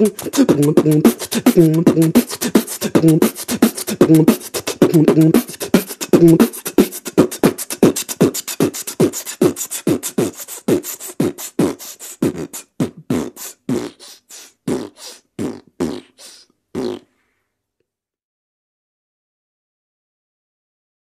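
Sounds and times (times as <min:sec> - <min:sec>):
percussive beats in hip-hop track: 0:00.0 - 0:13.5.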